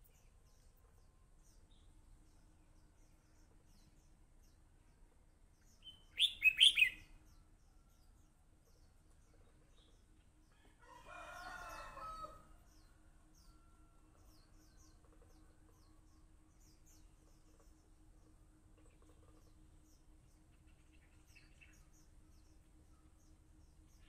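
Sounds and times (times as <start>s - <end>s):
faint high bird chirps: 5.6s - 8.2s
bird whistled song phrase: 5.9s - 7.0s.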